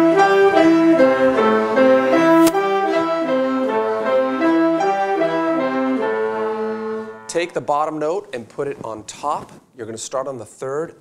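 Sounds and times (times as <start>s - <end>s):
short sharp click: 2.4s - 2.6s.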